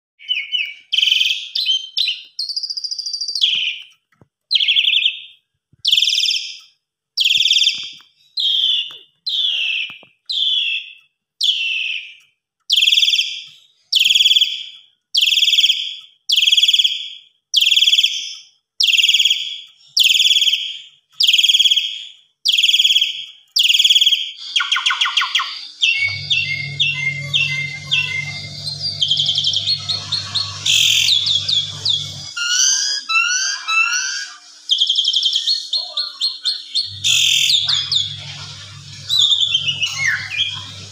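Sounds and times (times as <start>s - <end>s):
bird chattering: 23.6s - 40.9s
starling calling high note: 24.4s - 40.9s
steady low hum: 25.7s - 32.4s, 36.8s - 40.9s.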